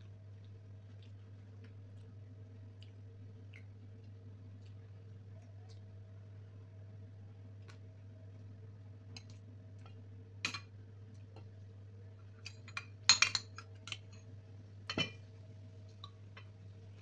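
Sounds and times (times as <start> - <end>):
steady low hum: 0.0 - 17.0
spoon clinking on ceramic plates: 12.4 - 14.2, 14.9 - 15.2.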